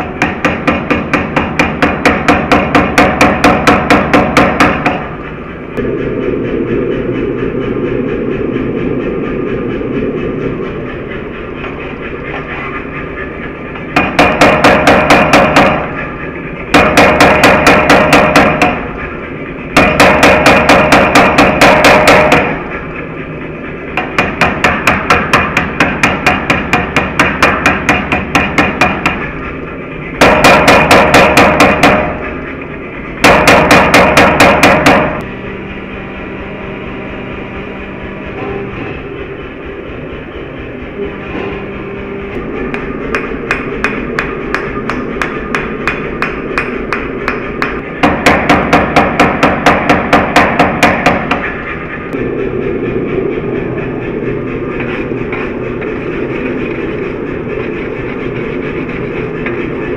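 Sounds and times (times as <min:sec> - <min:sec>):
power hammer heavy blows on steel: 0:00.0 - 0:05.2, 0:13.5 - 0:22.8, 0:23.7 - 0:29.3, 0:30.2 - 0:32.4, 0:33.2 - 0:35.3, 0:42.6 - 0:52.2.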